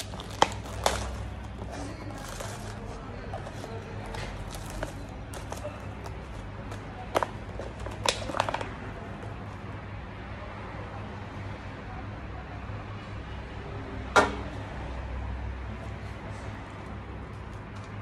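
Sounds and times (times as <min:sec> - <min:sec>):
plastic container crinkling: 0:00.0 - 0:08.8.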